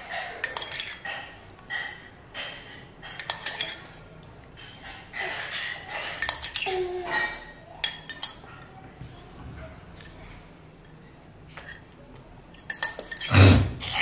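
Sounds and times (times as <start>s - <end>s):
spoon clinking against ceramic mug: 0.1s - 2.0s, 3.0s - 3.9s, 5.5s - 9.4s, 12.5s - 13.4s.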